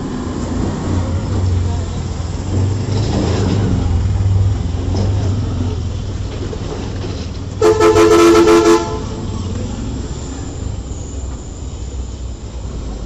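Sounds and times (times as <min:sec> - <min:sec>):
vehicle horn: 0:07.6 - 0:09.3.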